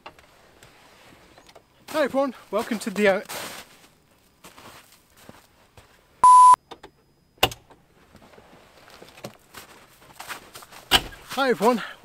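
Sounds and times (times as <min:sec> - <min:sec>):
electronic beep: 0:06.2 - 0:06.7.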